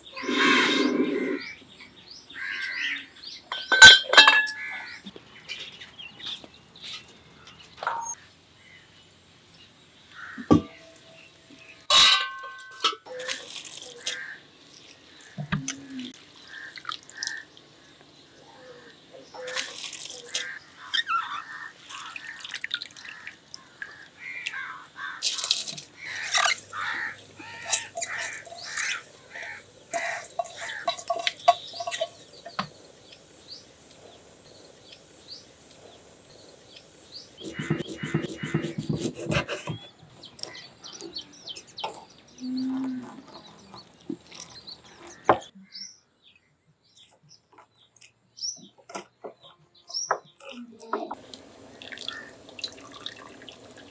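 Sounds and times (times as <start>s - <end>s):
water splashing and dripping: 12.8s - 18.2s, 19.3s - 20.9s, 21.5s - 34.0s, 43.6s - 45.2s, 50.4s - 53.9s
birds chirping: 13.1s - 53.9s.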